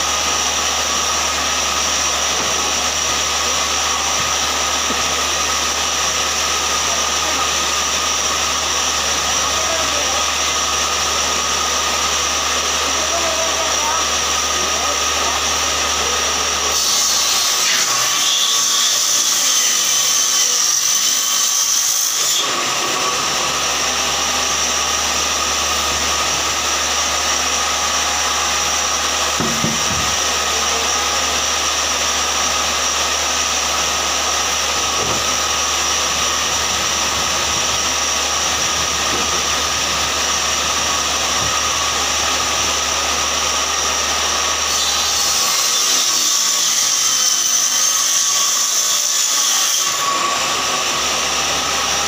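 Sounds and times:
saw cutting plywood: 0.0s - 52.0s
table saw whining: 0.0s - 52.0s.

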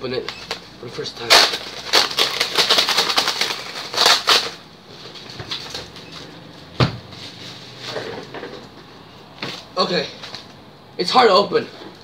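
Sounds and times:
bubble wrap crinkling: 1.2s - 4.6s.

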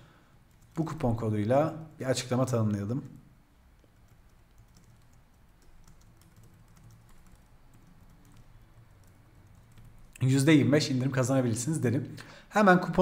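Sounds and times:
keyboard typing: 0.5s - 1.2s, 2.7s - 10.2s.

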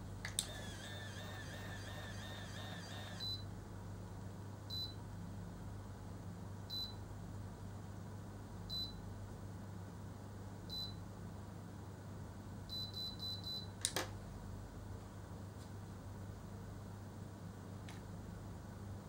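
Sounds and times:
low steady hum: 0.0s - 19.0s
hair curler motor whirring: 0.4s - 3.3s
short high beeps: 1.6s - 3.4s.

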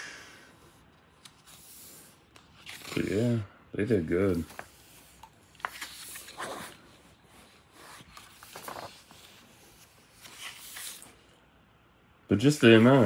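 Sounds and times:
paper rustling: 1.1s - 3.4s, 4.2s - 11.3s.

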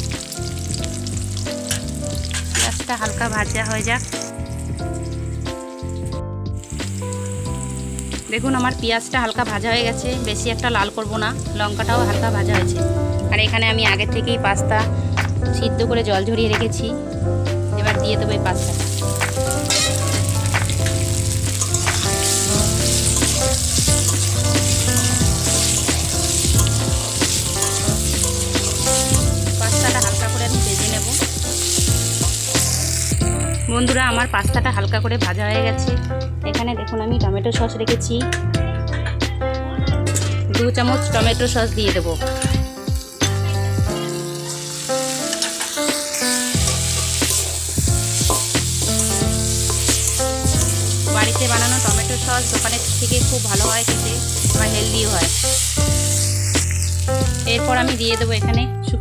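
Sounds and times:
pasta sizzling in hot oil: 0.0s - 14.0s, 17.7s - 34.5s, 41.1s - 58.2s
instrumental music: 0.0s - 59.0s
metal spatula scraping a pan: 1.7s - 2.9s, 19.5s - 20.3s, 25.4s - 29.1s, 43.2s - 51.7s
metal spatula scraping pan: 2.2s - 2.8s, 19.6s - 20.3s.

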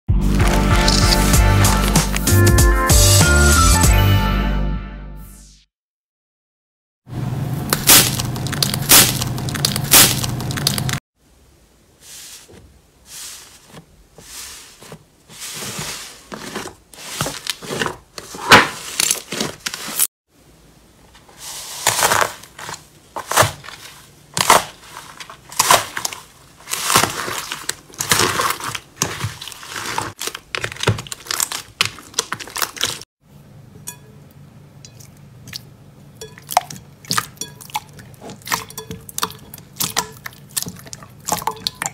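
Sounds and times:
crunchy slime crackling: 0.3s - 2.3s, 7.8s - 11.0s, 21.7s - 33.1s.

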